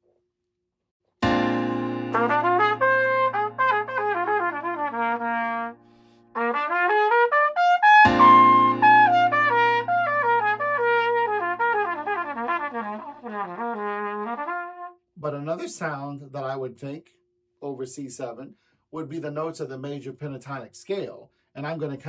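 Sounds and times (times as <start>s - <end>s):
trumpet arpeggio runs: 2.1s - 14.9s.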